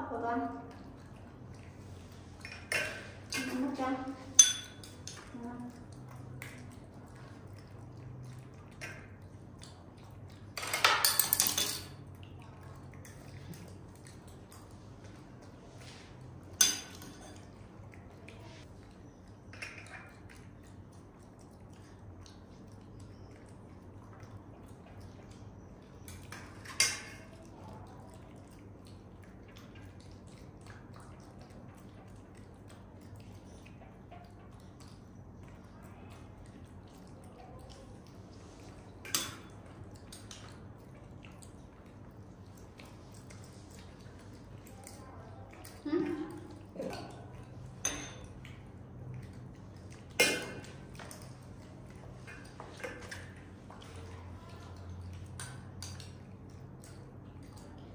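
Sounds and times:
low steady hum: 0:00.0 - 0:57.9
utensil clinking on dish: 0:02.4 - 0:05.4, 0:10.6 - 0:12.0, 0:16.5 - 0:17.5, 0:47.8 - 0:48.4, 0:50.2 - 0:50.8.

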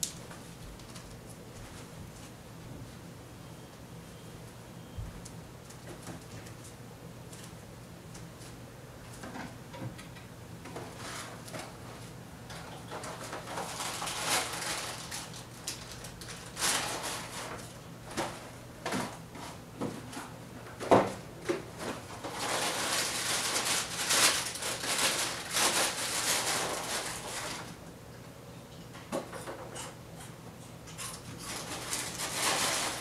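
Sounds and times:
rustling: 0:31.4 - 0:33.0.

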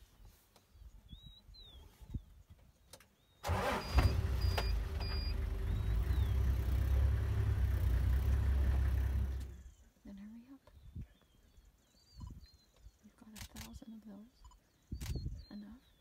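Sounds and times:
faint bird chirps: 0:00.1 - 0:06.9, 0:09.5 - 0:16.0
vehicle engine starting and running: 0:03.4 - 0:09.7.

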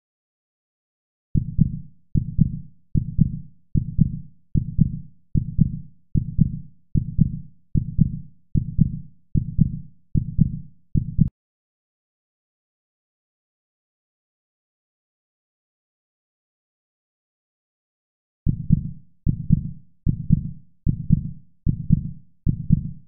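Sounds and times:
heartbeat thumps: 0:18.5 - 0:23.0.

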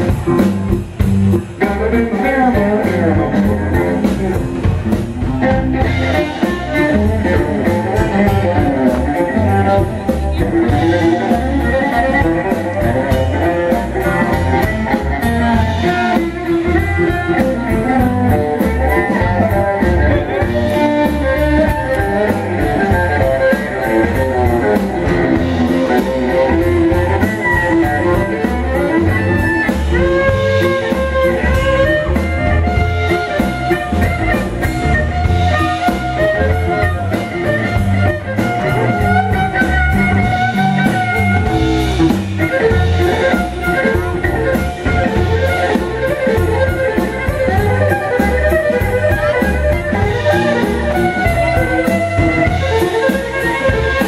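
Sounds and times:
bass guitar: 0:00.0 - 0:54.0
drum kit beat: 0:00.0 - 0:54.0.

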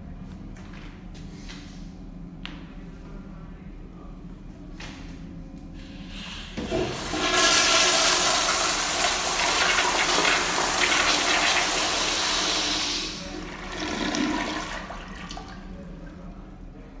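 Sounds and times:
toilet flushing rush of water: 0:06.1 - 0:15.8
toilet flush click: 0:06.2 - 0:15.5.

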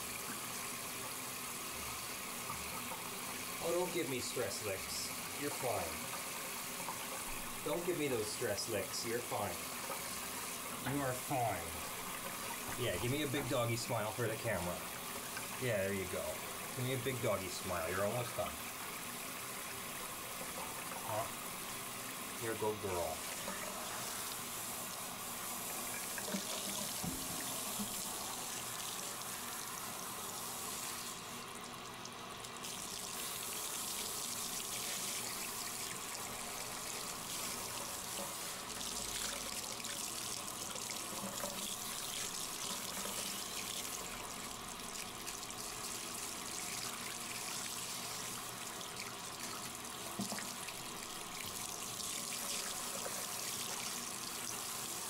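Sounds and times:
water spraying from shower head: 0:00.0 - 0:18.5, 0:32.6 - 0:44.0.

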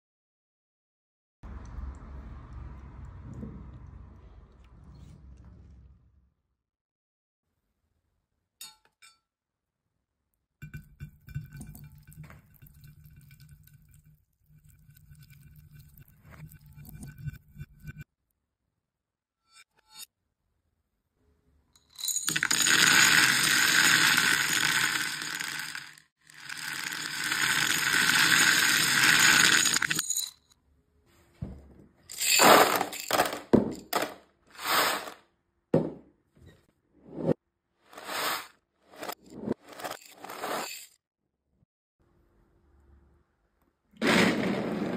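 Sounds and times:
water beads clinking in glass bowl: 0:21.9 - 0:30.5
plastic cubes rattling on glass: 0:22.0 - 0:30.3.

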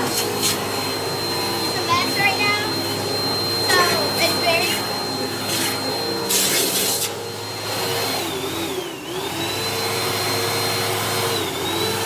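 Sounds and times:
vacuum cleaner motor whine: 0:00.0 - 0:12.0.

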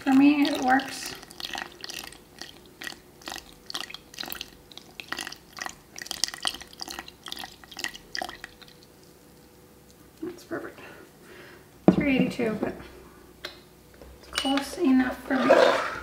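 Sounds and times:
water trickling into flour: 0:00.0 - 0:10.3.

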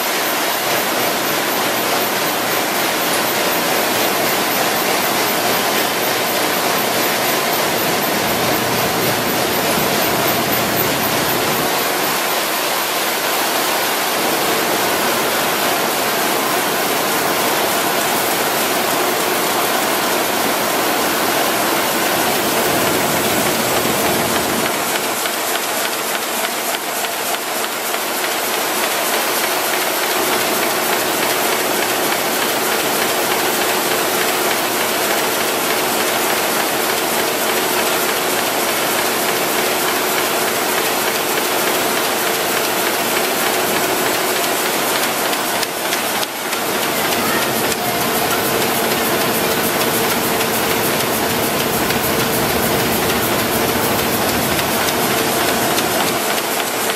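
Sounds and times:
offset printing press running: 0:00.0 - 0:56.9.

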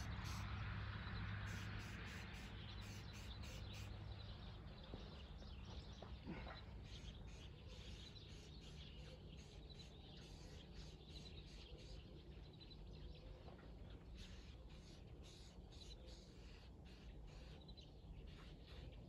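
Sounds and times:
high bird chirps: 0:01.5 - 0:04.2.

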